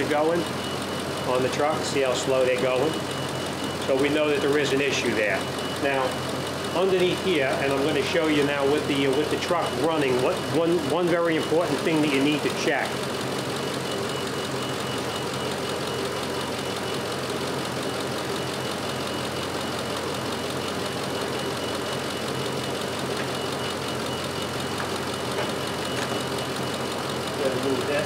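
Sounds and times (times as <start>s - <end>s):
truck engine idling: 0.0s - 28.0s.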